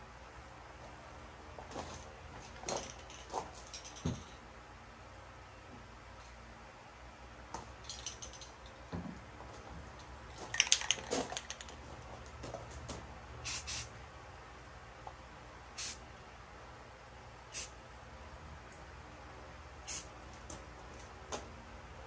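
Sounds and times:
clicks and rattles: 0:10.3 - 0:11.8
spray paint can hissing: 0:13.4 - 0:13.9, 0:15.8 - 0:16.0, 0:17.5 - 0:17.7, 0:19.8 - 0:20.1.

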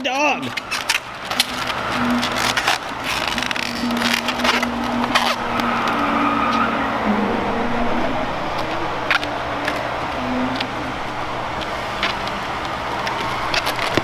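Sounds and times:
rubbery clicks: 0:00.5 - 0:06.0
rubber balloon squeaking: 0:00.6 - 0:06.8.

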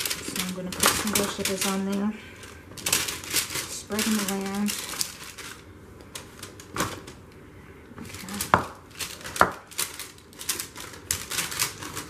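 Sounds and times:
parchment paper crinkling: 0:00.0 - 0:07.2, 0:08.0 - 0:12.0.

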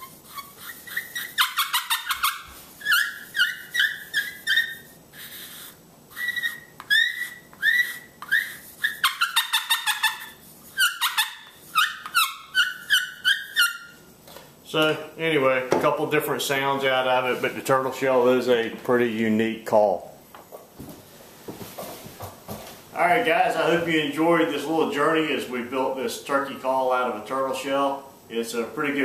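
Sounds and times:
turkey call squeaky yelps: 0:00.0 - 0:14.0.

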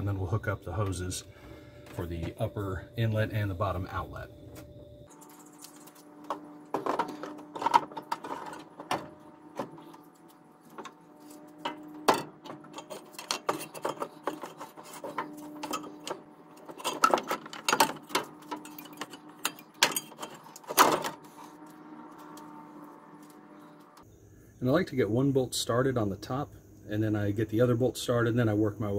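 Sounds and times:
faint steady hum: 0:00.0 - 0:28.9
radiator knocks and rattles: 0:06.2 - 0:21.4.

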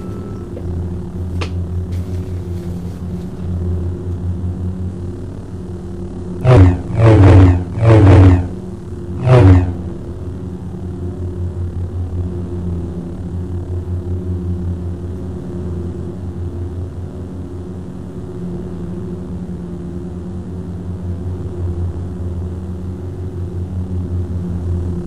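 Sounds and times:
lightsaber hum pulsing: 0:00.0 - 0:25.0.

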